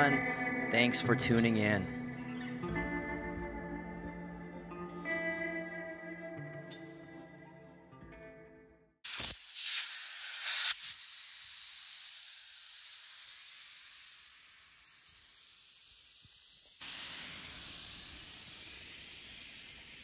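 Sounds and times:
air hissing through hose: 0:09.0 - 0:20.0.

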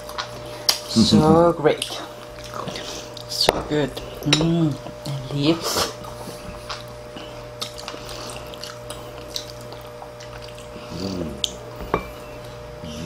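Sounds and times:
wet chewing and mouth smacking: 0:01.8 - 0:03.3, 0:06.0 - 0:11.6
person humming: 0:10.8 - 0:11.8, 0:12.7 - 0:13.0.

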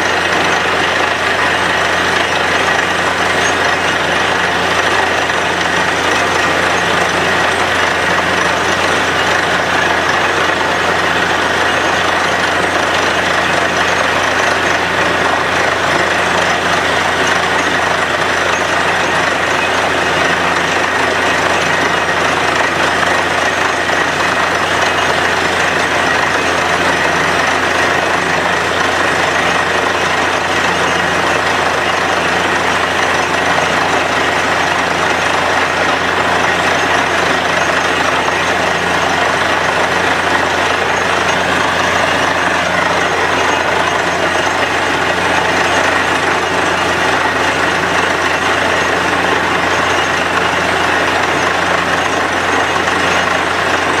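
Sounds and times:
drilling rig running: 0:00.0 - 0:54.0.

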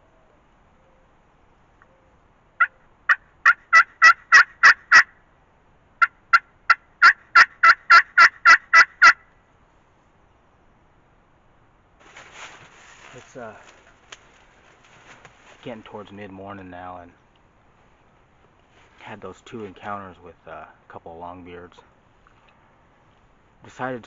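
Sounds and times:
turkey yelping: 0:02.6 - 0:05.1, 0:06.0 - 0:09.2.

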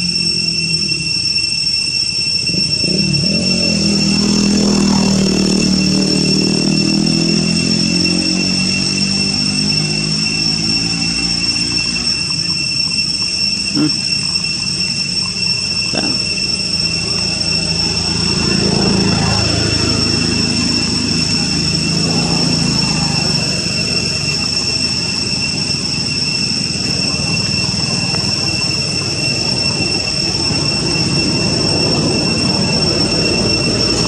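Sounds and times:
high-pitched insect drone: 0:00.0 - 0:34.0
low engine rumble: 0:00.0 - 0:34.0
short rising squeaks: 0:00.0 - 0:34.0.

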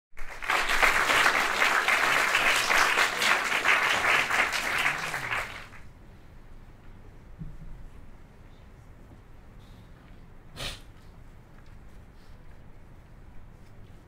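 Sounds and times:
audience applauding: 0:00.1 - 0:05.9.

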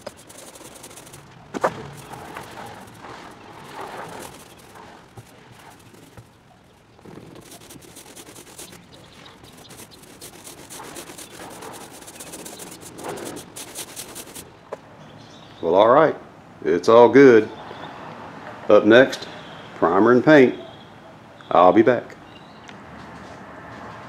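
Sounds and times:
roller rubbing over wet resin: 0:00.0 - 0:14.5.

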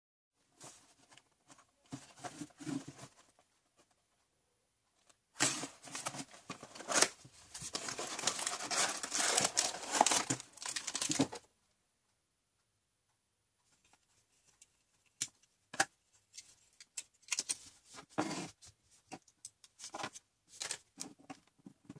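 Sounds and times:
cardboard box being opened: 0:05.4 - 0:11.4
plastic wrapper crinkling: 0:07.7 - 0:11.4.

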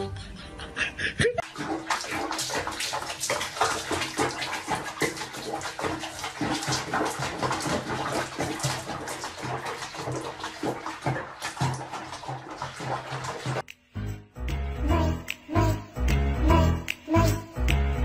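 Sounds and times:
water splashing in a plastic basin: 0:01.4 - 0:13.7.

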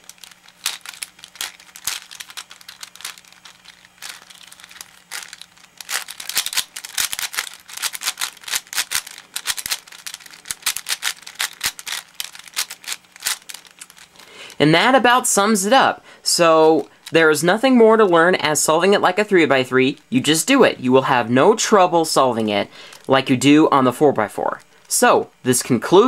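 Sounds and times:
puzzle cube plastic clicking: 0:00.0 - 0:14.1.

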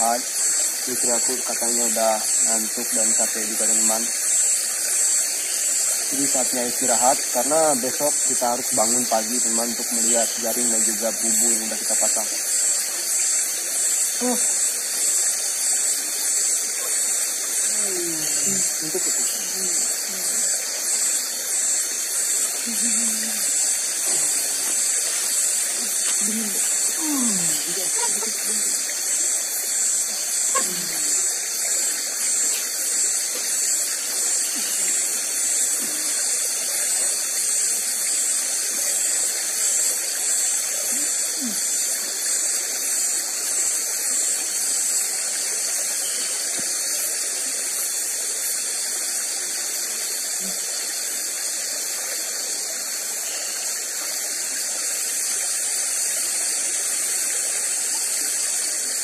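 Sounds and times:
insects buzzing hiss: 0:00.0 - 0:59.0
pulsing insect chirp: 0:00.0 - 0:59.0
low falling calls: 0:22.4 - 0:31.4.

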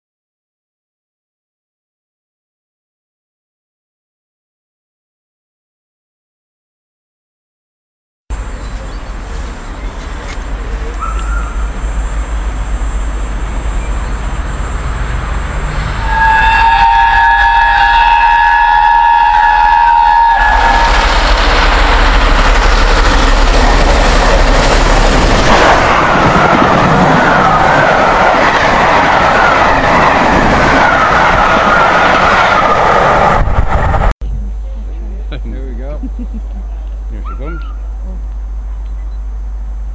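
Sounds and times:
steam train rumbling: 0:08.3 - 0:39.9
high-pitched wheel squeal: 0:10.9 - 0:11.7, 0:13.7 - 0:21.0.

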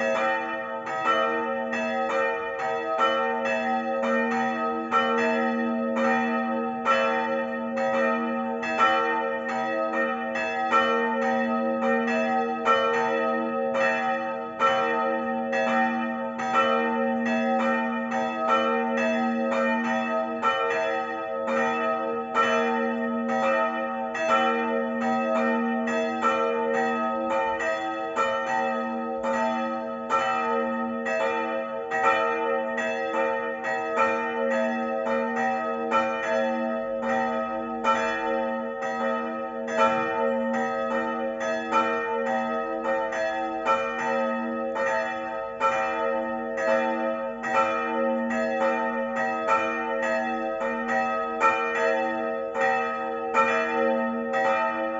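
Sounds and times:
church bells pealing: 0:00.0 - 0:54.9.

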